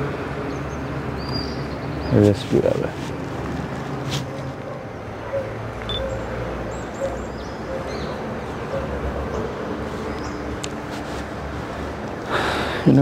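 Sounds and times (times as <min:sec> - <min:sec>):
distant traffic rumble: 0:00.0 - 0:13.0
faint bird chirps: 0:05.9 - 0:06.3.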